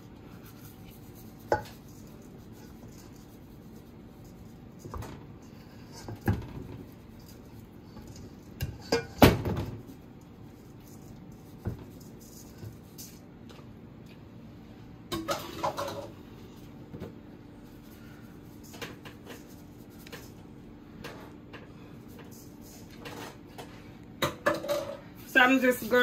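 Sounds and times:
dishes and utensils clattering: 8.1 - 9.7, 15.1 - 16.2, 22.9 - 25.1.

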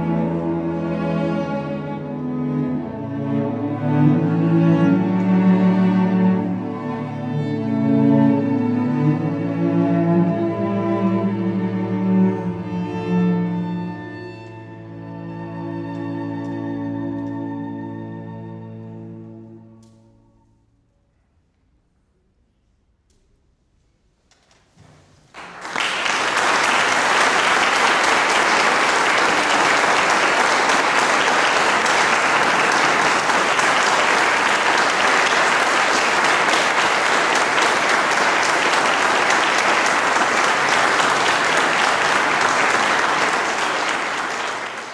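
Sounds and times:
audience applause: 25.4 - 44.9.

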